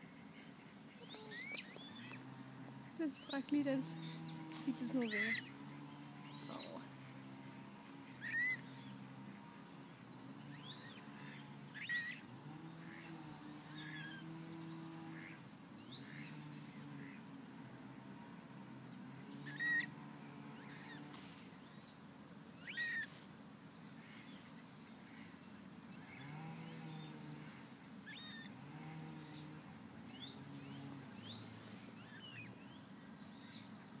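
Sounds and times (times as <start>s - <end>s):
coots calling: 0.0s - 9.1s, 10.5s - 17.3s, 19.3s - 21.3s, 22.6s - 23.2s, 26.0s - 32.5s
small birds twittering: 0.0s - 34.0s.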